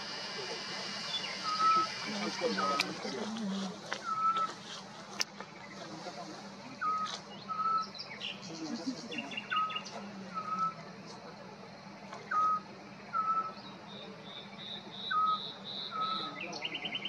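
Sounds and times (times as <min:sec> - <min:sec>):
owl soft whistled calls: 0:00.0 - 0:03.1, 0:03.9 - 0:04.6, 0:06.8 - 0:08.0, 0:09.4 - 0:10.9, 0:12.2 - 0:17.0.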